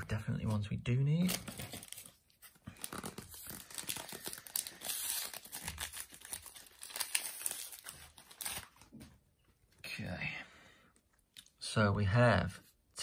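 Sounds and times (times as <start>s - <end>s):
card packet wrapper crinkling and tearing: 1.1s - 9.0s.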